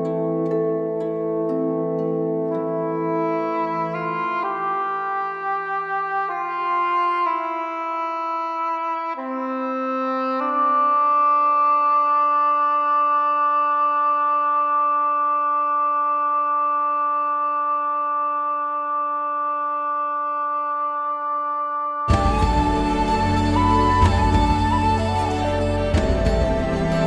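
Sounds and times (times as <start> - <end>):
slow sustained music chords: 22.1 - 27.0.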